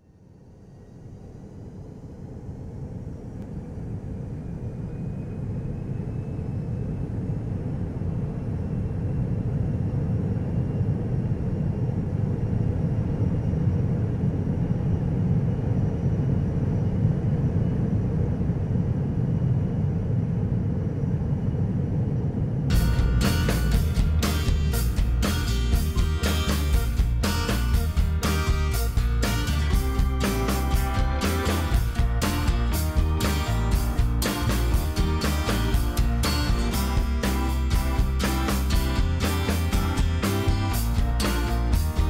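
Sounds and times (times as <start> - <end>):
faint high whining tones: 0.0 - 24.3
airliner engines rumbling: 0.0 - 42.0.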